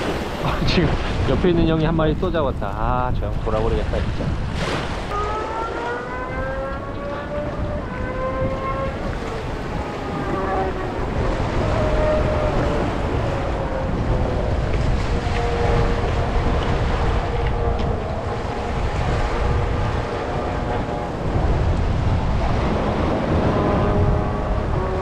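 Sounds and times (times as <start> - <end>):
waves against rocks: 0.0 - 5.9
wind buffeting microphone: 0.0 - 25.0.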